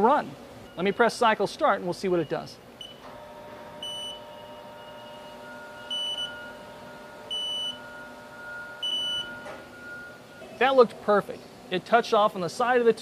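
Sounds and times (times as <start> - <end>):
machine hum: 2.6 - 10.6.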